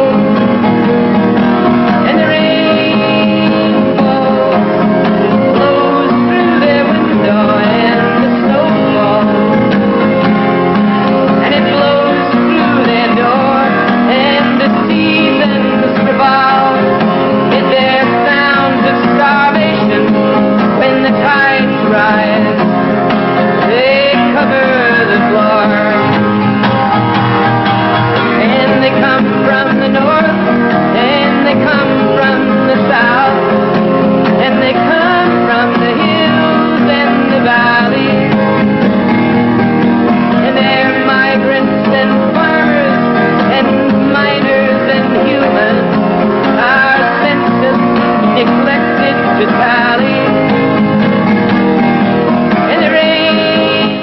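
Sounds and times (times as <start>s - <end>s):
man singing: 0.0s - 10.4s, 11.3s - 22.7s, 23.4s - 26.3s, 28.2s - 38.6s, 40.4s - 50.6s, 52.5s - 54.0s
acoustic guitar: 0.0s - 54.0s.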